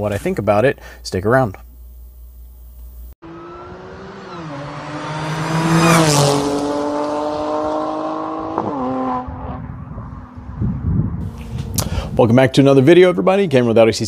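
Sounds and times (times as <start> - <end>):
car engine at speed: 3.2 - 12.1.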